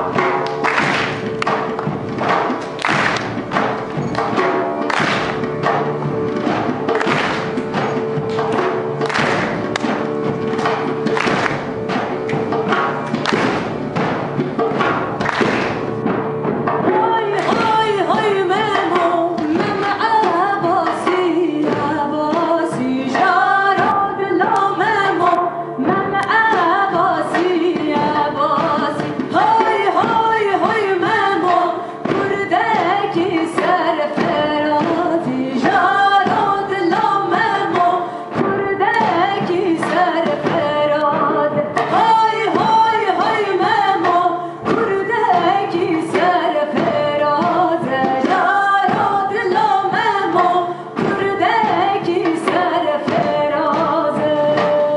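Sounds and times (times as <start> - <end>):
band playing: 0.0 - 54.9
women singing: 16.7 - 54.9.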